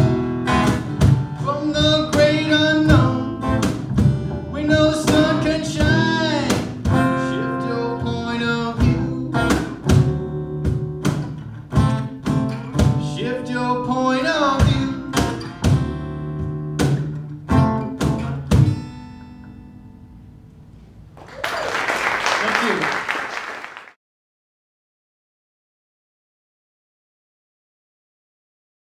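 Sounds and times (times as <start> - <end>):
acoustic band playing: 0.0 - 22.0
audience applause: 21.2 - 24.0.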